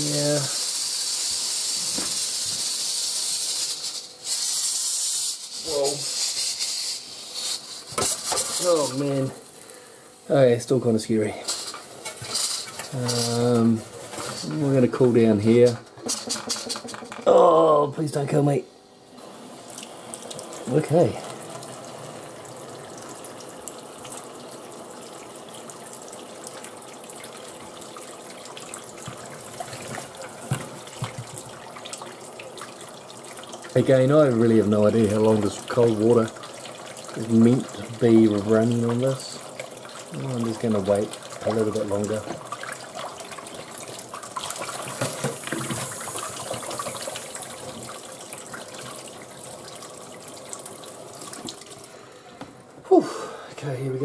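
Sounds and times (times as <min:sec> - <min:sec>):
tap water splashing on a lid: 0:29.0 - 0:32.8
tap water splashing on a metal lid: 0:29.0 - 0:32.8, 0:39.6 - 0:49.0.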